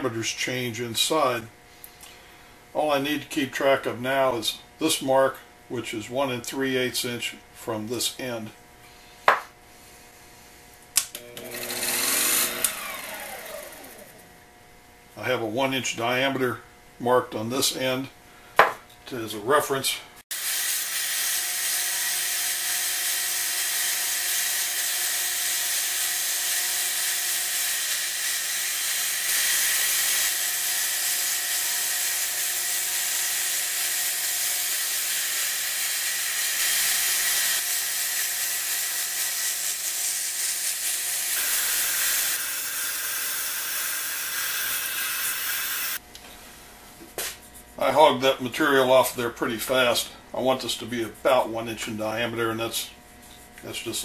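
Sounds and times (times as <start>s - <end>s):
lathe tool cutting wood: 11.3s - 14.2s, 20.4s - 46.0s.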